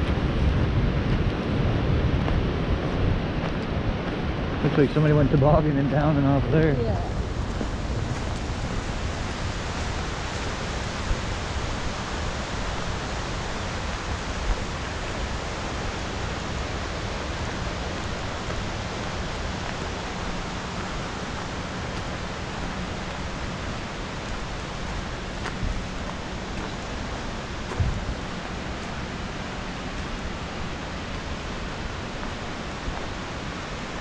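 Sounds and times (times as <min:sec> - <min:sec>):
waterfall roaring: 0:00.0 - 0:34.0.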